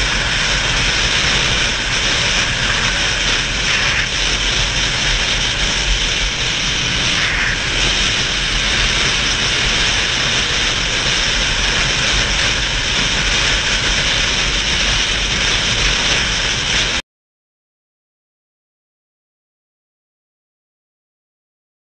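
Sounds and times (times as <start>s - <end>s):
motorcycle engine rumble: 0.0s - 17.0s
wind and road noise: 0.0s - 17.0s.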